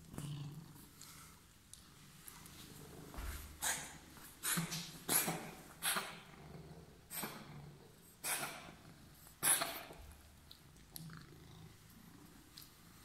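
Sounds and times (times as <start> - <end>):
cat purring: 5.4 - 9.4, 10.8 - 13.0.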